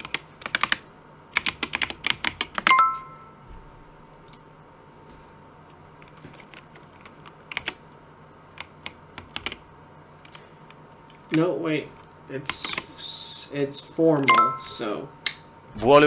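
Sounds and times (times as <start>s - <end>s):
computer keyboard typing: 0.0s - 3.0s, 6.0s - 7.8s, 8.5s - 9.6s, 12.5s - 12.9s.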